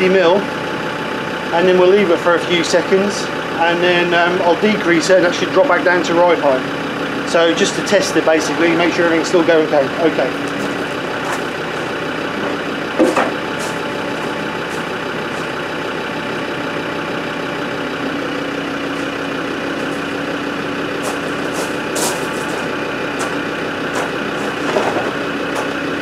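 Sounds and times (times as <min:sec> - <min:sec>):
diesel engine idling: 0:00.0 - 0:26.0
air suspension lifting: 0:10.3 - 0:16.6, 0:18.2 - 0:26.0.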